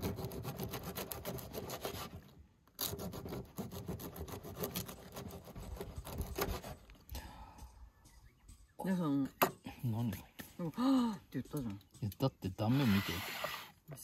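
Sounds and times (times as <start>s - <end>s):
knife sawing through bread: 0.0s - 2.2s, 2.8s - 6.8s.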